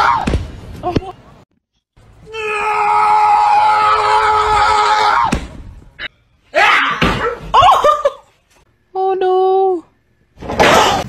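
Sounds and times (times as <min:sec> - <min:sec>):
long loud scream: 0:02.2 - 0:05.4.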